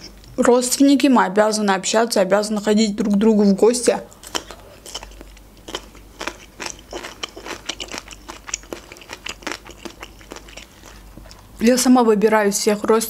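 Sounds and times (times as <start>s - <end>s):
person chewing crunchy vegetable: 4.1s - 11.5s.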